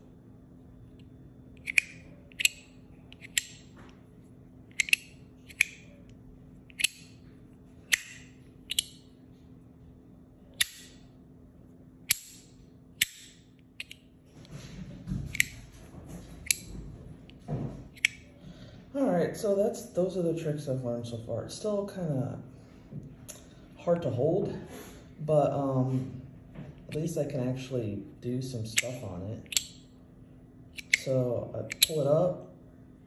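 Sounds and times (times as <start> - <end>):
metal fidget slider clicking: 1.6 - 3.6, 4.7 - 5.9, 6.7 - 7.2, 7.9 - 9.0, 30.8 - 31.1, 31.7 - 32.0.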